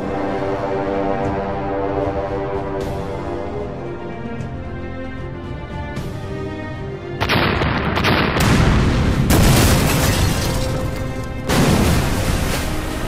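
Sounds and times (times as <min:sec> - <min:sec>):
background music: 0:00.0 - 0:13.0
explosion booms: 0:11.5 - 0:12.7.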